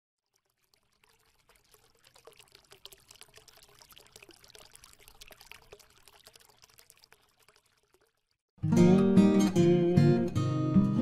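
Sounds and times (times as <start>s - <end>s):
faint dense crackling and trickling: 0.2s - 8.5s.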